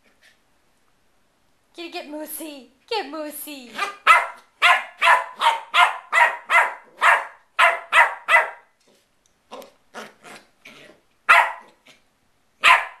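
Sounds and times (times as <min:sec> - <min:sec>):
puppy barking: 0:03.7 - 0:08.7, 0:11.3 - 0:11.8, 0:12.6 - 0:13.0.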